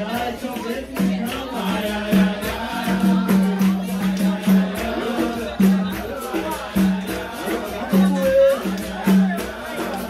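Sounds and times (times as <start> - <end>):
group singing: 0.0 - 10.0
shaken jingling percussion: 0.0 - 10.0.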